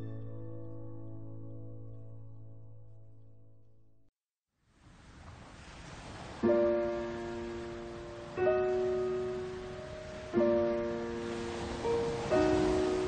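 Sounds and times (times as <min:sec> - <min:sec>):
piano playing slow chords: 0:00.0 - 0:04.1, 0:06.4 - 0:13.0.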